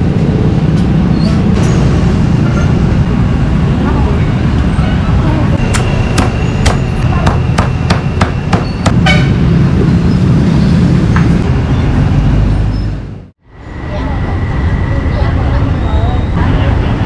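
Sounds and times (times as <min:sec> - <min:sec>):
street traffic: 0:00.0 - 0:17.0
voices: 0:03.8 - 0:07.8, 0:13.6 - 0:17.0.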